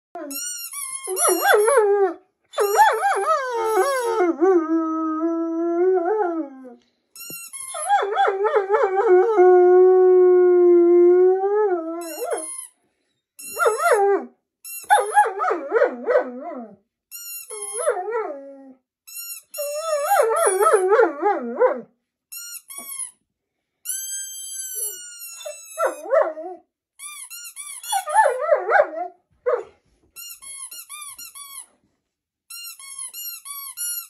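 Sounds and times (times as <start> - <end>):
dog howling: 1.1 - 6.7.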